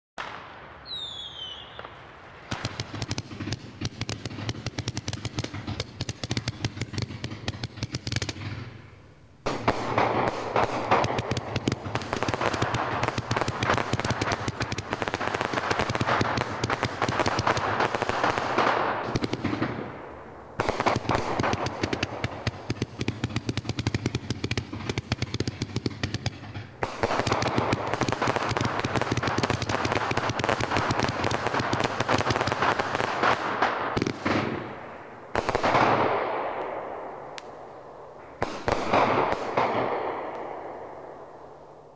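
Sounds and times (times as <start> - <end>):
fireworks popping and bursting: 0.2 - 8.9, 9.5 - 20.0, 20.6 - 37.6, 38.2 - 41.0.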